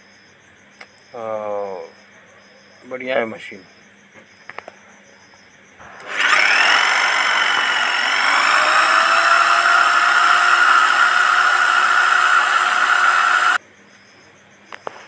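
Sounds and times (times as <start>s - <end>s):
hammer drill motor whining: 5.8s - 13.6s.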